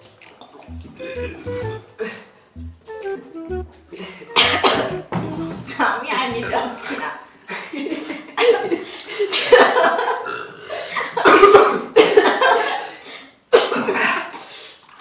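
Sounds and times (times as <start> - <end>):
people burping: 0.9 - 2.8, 4.3 - 5.5, 6.3 - 7.2, 10.0 - 11.9
people coughing: 4.3 - 5.0, 11.2 - 12.8, 13.6 - 14.2.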